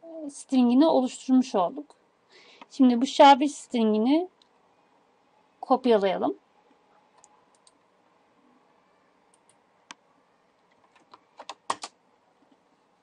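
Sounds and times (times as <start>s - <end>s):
computer keys clicking: 7.2s - 7.8s, 9.3s - 10.0s, 10.6s - 12.0s
mouse clicks: 7.2s - 7.8s.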